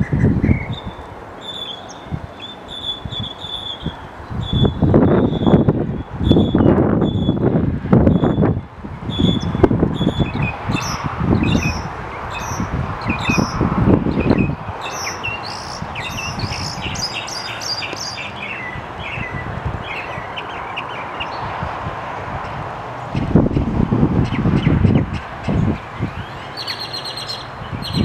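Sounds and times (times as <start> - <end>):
mockingbird singing: 0.0 - 7.4, 8.1 - 21.4, 24.2 - 28.0
wind gusts on microphone: 0.0 - 28.0.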